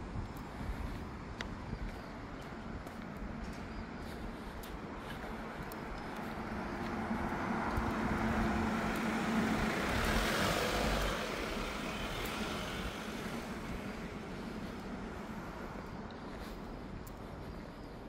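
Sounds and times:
vehicle passing: 5.2 - 16.8.

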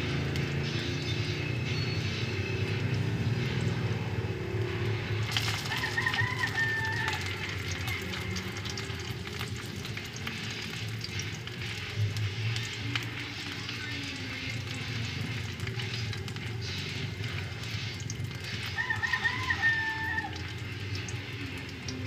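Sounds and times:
wood fire crackling: 0.0 - 22.0
rooster crowing: 5.5 - 7.6, 18.7 - 20.5.

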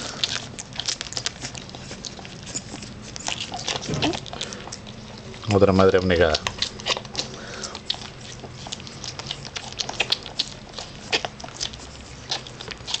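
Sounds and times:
puppies suckling with wet smacks: 0.0 - 13.0.

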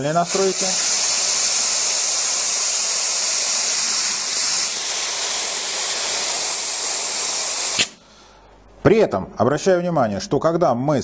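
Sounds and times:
spray gun air hissing: 0.0 - 8.0.

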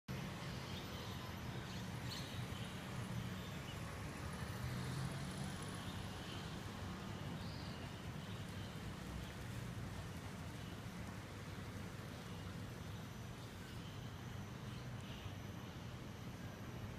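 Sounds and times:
steady low hum: 6.0 - 16.9.

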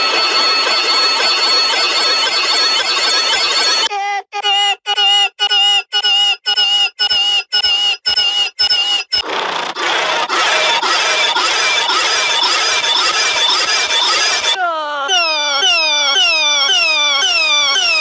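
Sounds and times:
pulsing high squealing tone: 6.5 - 18.0.

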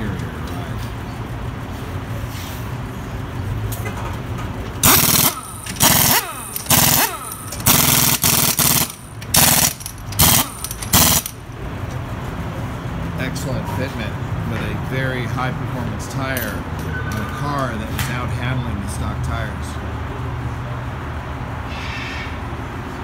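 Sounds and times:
pneumatic impact wrench rattling: 3.7 - 11.5.

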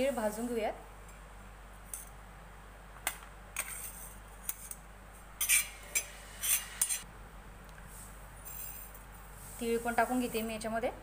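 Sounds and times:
spoon scraping steel pan: 5.4 - 7.0.

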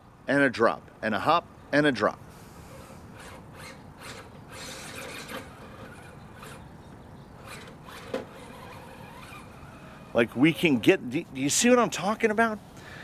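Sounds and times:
toy car tires scraping on rock: 2.6 - 6.7, 7.4 - 10.9.

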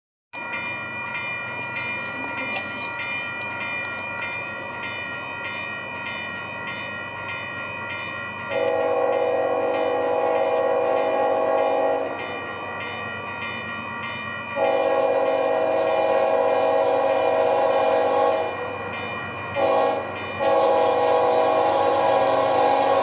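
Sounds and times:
railroad crossing bell ringing: 0.4 - 23.0
locomotive air horn blast: 8.6 - 12.1, 14.6 - 18.5, 19.6 - 23.0.

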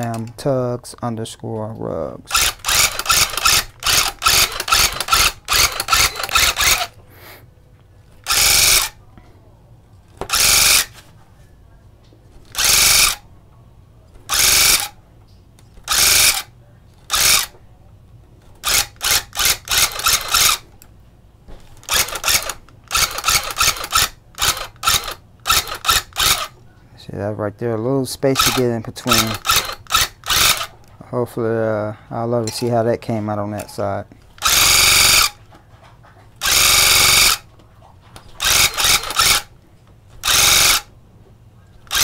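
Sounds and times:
electric tufting gun bursts: 2.3 - 6.9.

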